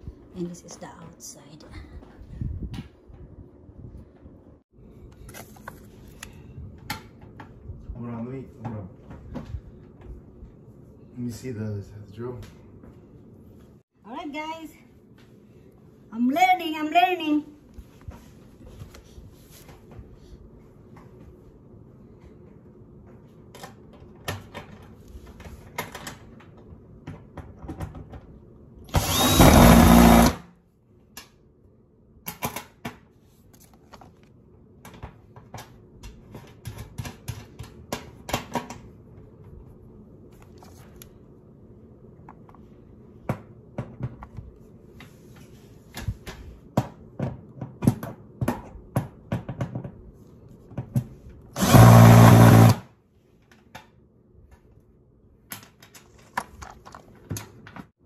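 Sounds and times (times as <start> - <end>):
drill driving screws into metal: 28.9 - 30.4, 51.6 - 52.9.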